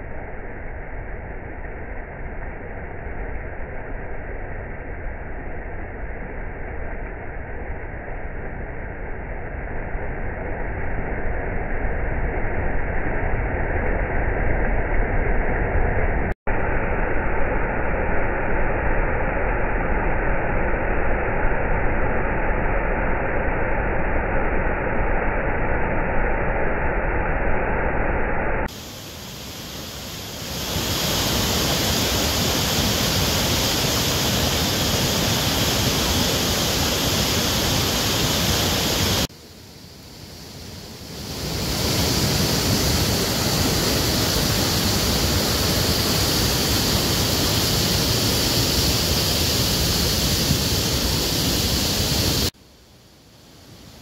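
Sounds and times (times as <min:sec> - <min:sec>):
waterfall pouring over rocks: 0:28.7 - 0:39.3, 0:41.2 - 0:52.5.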